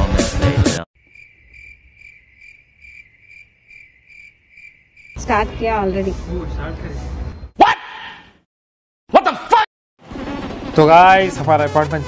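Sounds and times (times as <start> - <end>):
crickets chirping: 1.0 - 7.6.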